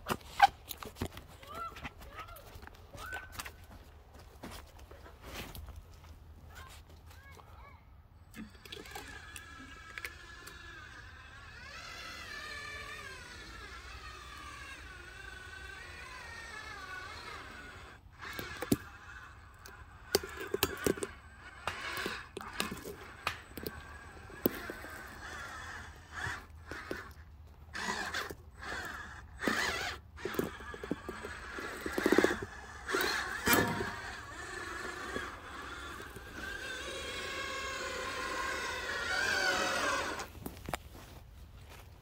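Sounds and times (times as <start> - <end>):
electric motors whining: 8.3 - 41.8.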